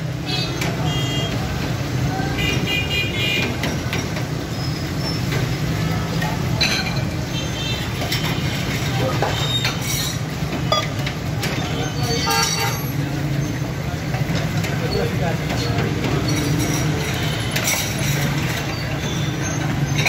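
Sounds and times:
traffic rumble: 0.0 - 20.0
metallic clinks of buckets and cups: 8.0 - 12.9, 14.3 - 20.0.

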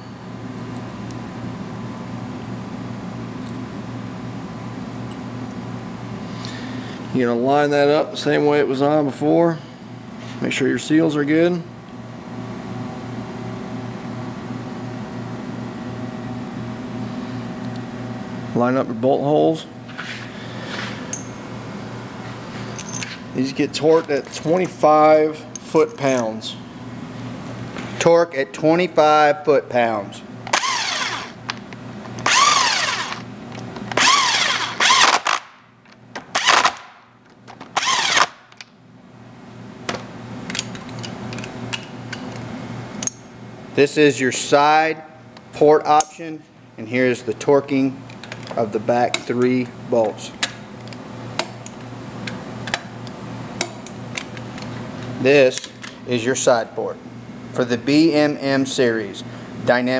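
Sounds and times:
machinery humming: 12.4 - 36.7
tool handling clicks: 22.7 - 23.2, 39.9 - 43.2, 48.1 - 54.8, 55.5 - 56.0
cordless drill spinning: 30.5 - 31.4, 32.2 - 33.3, 33.9 - 35.5, 37.8 - 38.4.

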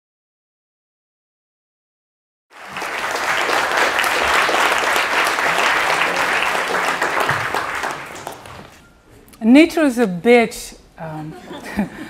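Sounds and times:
audience applauding: 2.5 - 8.8.

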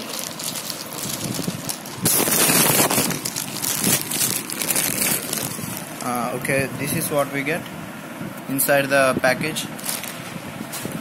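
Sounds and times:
plastic mailer bag crinkling: 0.0 - 6.2, 9.8 - 10.3.

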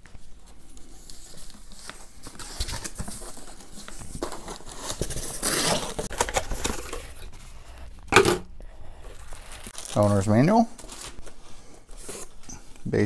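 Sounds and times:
cardboard scraping and rubbing: 2.3 - 7.8.

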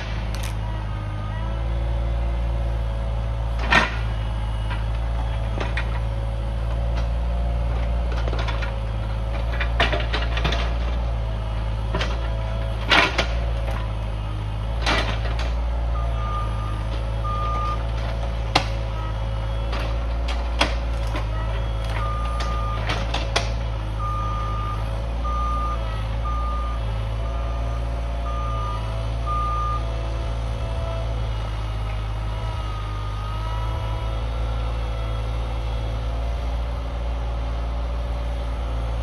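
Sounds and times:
diesel engine running: 0.0 - 39.0.

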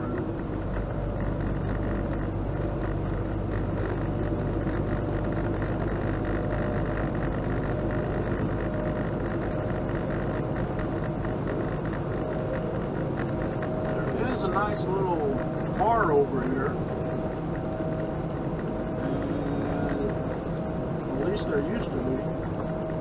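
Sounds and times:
truck diesel engine droning: 0.0 - 23.0
tyre and road noise: 0.0 - 23.0.

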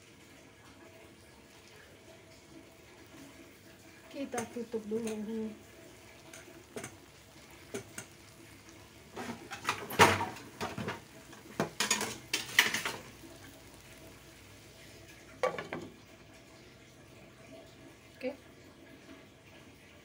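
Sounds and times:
cookware clinking and clattering: 4.2 - 5.3, 6.2 - 8.3, 9.1 - 13.2, 15.4 - 16.0
glass lid knocking onto pan: 15.4 - 15.9.

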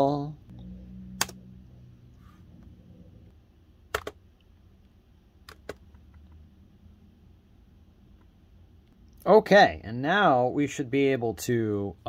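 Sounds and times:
laptop clicks: 3.9 - 4.2, 5.5 - 5.8.

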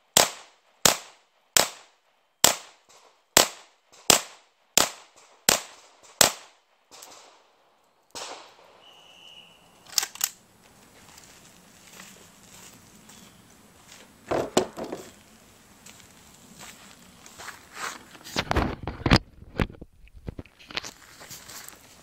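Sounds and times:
pistol shots: 0.1 - 7.4, 8.1 - 9.2
sharp metallic clicks: 9.8 - 10.4.

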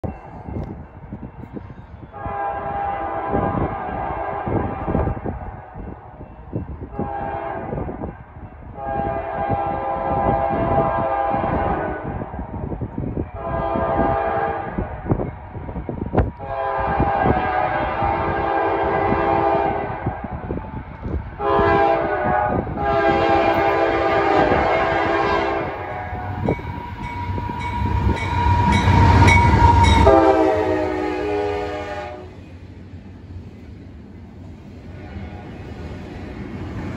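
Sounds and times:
train horn blasts: 2.1 - 5.4, 6.9 - 8.0, 8.7 - 12.3, 13.3 - 14.9, 16.4 - 20.6, 21.4 - 32.4
locomotive engine and wheel rumble: 10.4 - 36.9.

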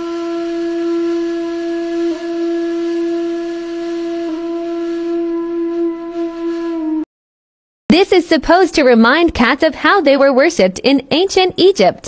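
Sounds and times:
steady flute-like tone: 0.0 - 7.1.

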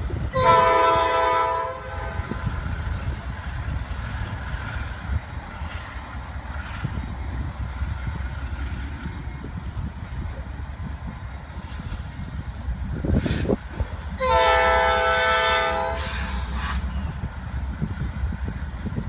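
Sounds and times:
locomotive engines rumbling: 0.0 - 19.0
locomotive horn blast: 0.3 - 2.4, 14.2 - 16.7.

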